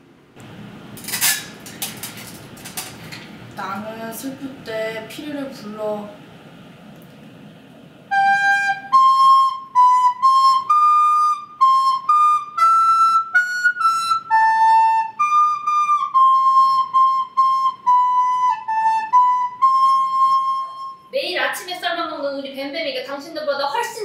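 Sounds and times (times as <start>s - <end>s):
recorder melody: 8.1s - 21.1s.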